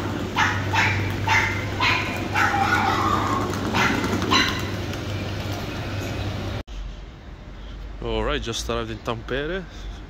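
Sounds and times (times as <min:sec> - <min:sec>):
dog barking and yipping: 0:00.3 - 0:04.9.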